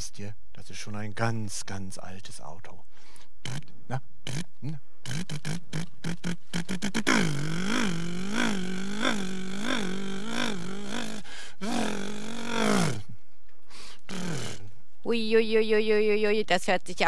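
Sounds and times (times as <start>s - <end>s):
old car engine revving: 5.2s - 13.1s, 14.0s - 14.7s.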